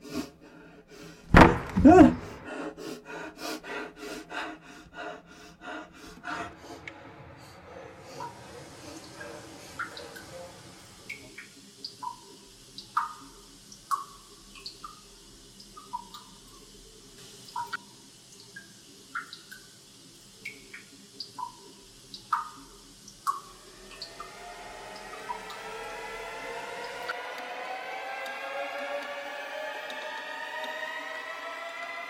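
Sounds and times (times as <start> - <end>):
drone of rising tones: 6.1 - 11.5, 23.3 - 32.0.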